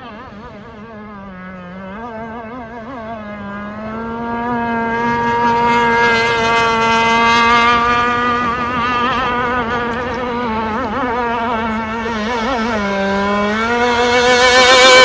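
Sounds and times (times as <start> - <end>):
model boat engine running: 0.0 - 15.0.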